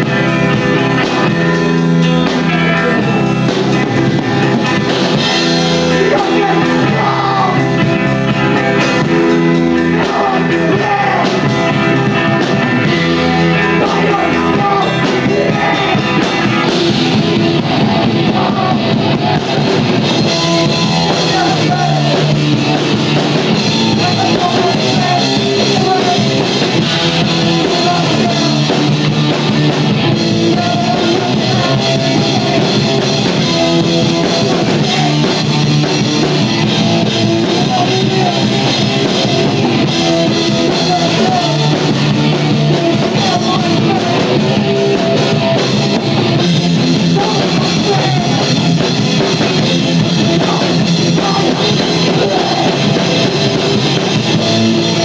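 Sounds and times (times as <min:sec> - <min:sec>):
rock band playing live: 0:00.0 - 0:55.0.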